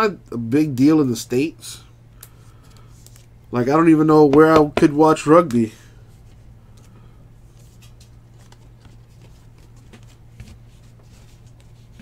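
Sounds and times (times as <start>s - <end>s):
steady low hum: 0.0s - 12.0s
cards rustling and flicking: 7.5s - 12.0s.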